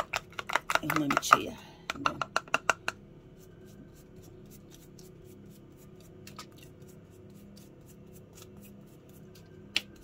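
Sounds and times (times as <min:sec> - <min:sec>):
brush clicking against plastic bowl: 0:00.0 - 0:03.0
soft brush strokes: 0:03.2 - 0:09.6.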